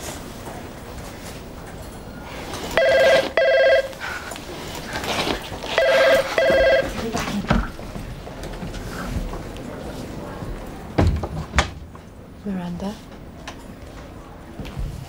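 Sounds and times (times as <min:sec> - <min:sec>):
telephone ringing: 0:02.8 - 0:04.1, 0:05.7 - 0:07.2.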